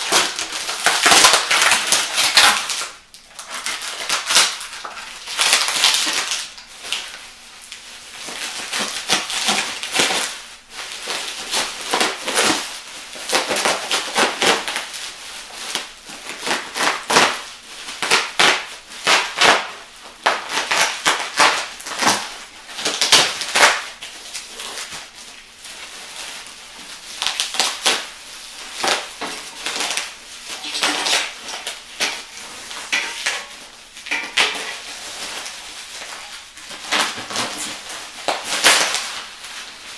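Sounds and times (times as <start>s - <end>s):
bubble wrap crackling and tearing: 0.0s - 39.9s.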